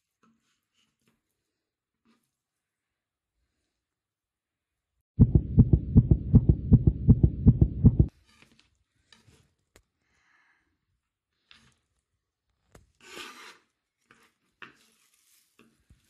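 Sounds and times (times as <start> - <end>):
faint clicks and scrapes: 0.0 - 2.7, 8.1 - 9.9, 11.3 - 16.0
deep rhythmic thumping: 5.2 - 8.1.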